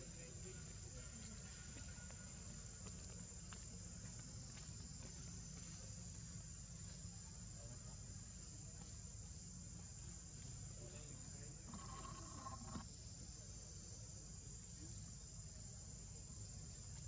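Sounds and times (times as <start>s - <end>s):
high-pitched insect drone: 11.6s - 16.6s.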